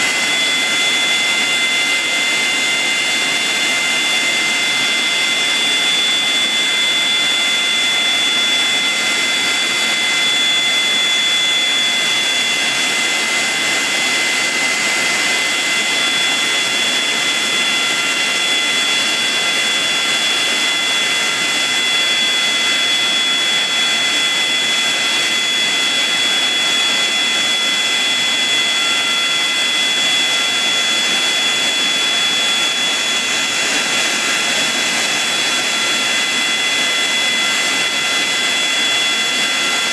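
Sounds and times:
jet engines idling: 0:00.0 - 0:39.9.

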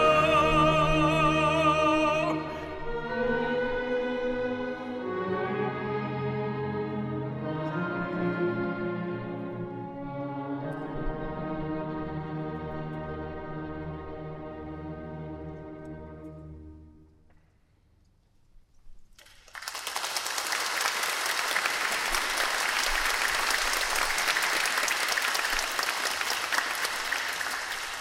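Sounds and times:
audience applause: 0:19.2 - 0:28.0.

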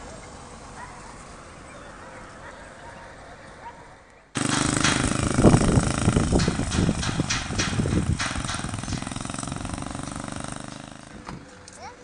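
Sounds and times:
clatter: 0:04.4 - 0:11.1
vehicle engine running: 0:04.4 - 0:12.0.

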